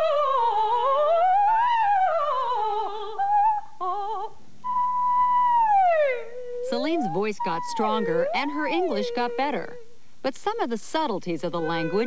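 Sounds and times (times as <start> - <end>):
woman doing vocal warm-ups: 6.6 - 12.0.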